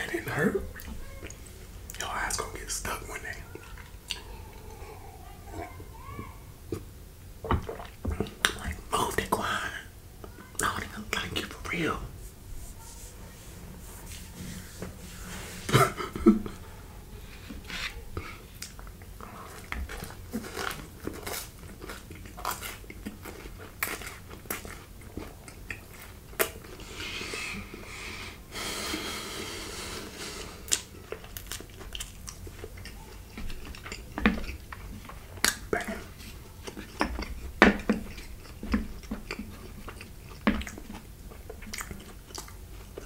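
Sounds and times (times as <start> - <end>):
chewing with wet mouth smacks: 7.4 - 8.8, 18.2 - 26.8, 30.7 - 43.0.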